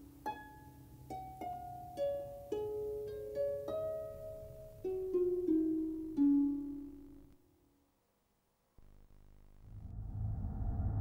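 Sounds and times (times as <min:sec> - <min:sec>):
plucked string melody: 0:00.0 - 0:07.3.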